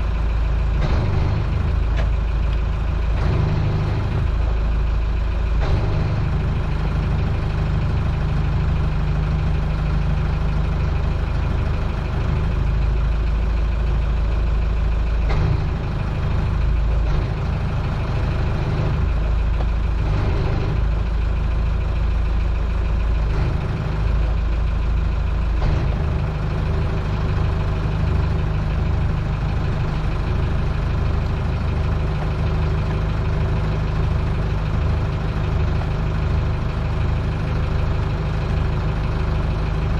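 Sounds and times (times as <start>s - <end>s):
boat engine humming: 0.0s - 39.9s.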